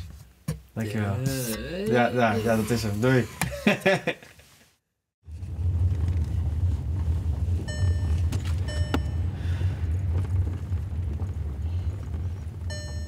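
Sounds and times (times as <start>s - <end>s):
car driving rumble from inside: 5.3s - 13.0s.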